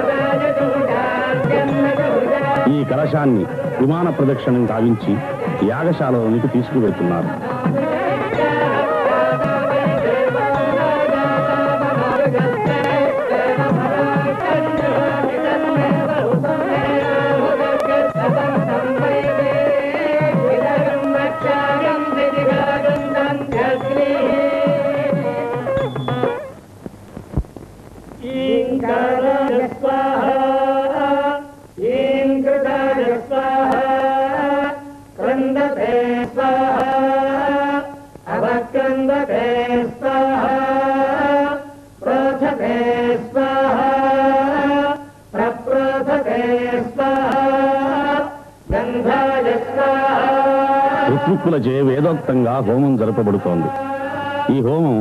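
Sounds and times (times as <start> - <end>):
devotional chanting: 0.0 - 26.6, 28.2 - 55.0.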